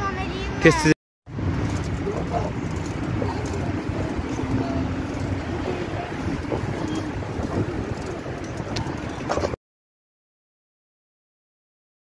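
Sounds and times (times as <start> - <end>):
wind buffeting microphone: 1.3 - 9.6.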